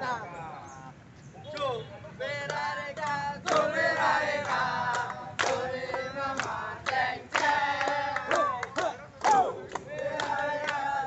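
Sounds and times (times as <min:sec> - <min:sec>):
men singing a chant: 0:02.1 - 0:11.0
sharp handclaps: 0:02.4 - 0:11.0.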